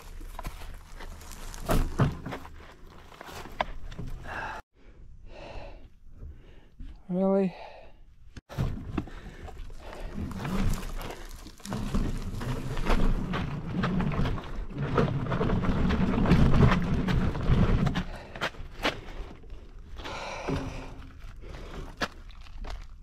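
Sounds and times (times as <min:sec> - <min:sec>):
bike rattles and knocks: 0:00.0 - 0:04.6, 0:08.5 - 0:19.4
bike rolling on dirt trail: 0:00.0 - 0:04.6, 0:08.8 - 0:23.0
heavy breathing: 0:04.1 - 0:06.9, 0:09.0 - 0:11.6, 0:18.0 - 0:22.1.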